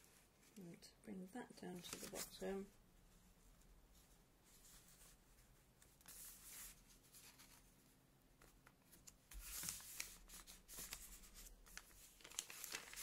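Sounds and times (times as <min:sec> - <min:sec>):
paper rustling: 0:01.8 - 0:02.4, 0:05.8 - 0:07.8, 0:08.4 - 0:13.0.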